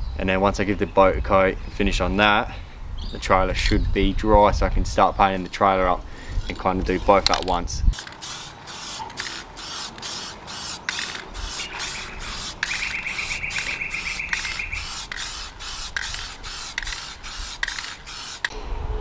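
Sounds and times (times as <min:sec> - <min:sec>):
hand sanding metal boat hull: 0:08.4 - 0:18.5.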